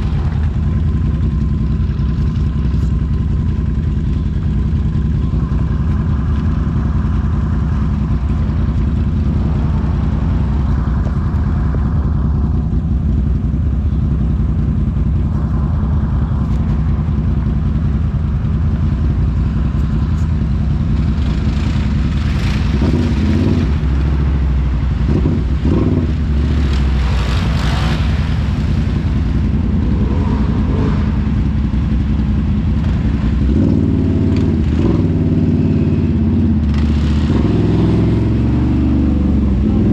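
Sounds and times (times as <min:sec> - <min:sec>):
atv engine running: 0:00.0 - 0:39.9
rushing noise: 0:14.4 - 0:33.7.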